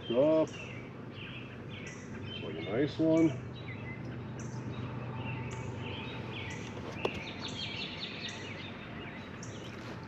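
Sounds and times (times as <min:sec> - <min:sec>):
songbirds chirping: 0:00.0 - 0:10.0
steady low hum: 0:00.0 - 0:10.0.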